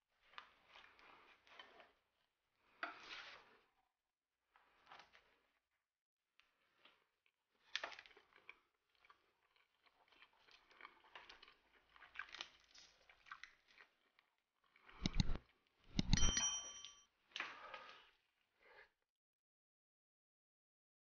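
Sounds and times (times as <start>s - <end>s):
crisp pastry crackling and crunching: 9.4s - 14.2s
bell-like ding: 16.0s - 17.0s.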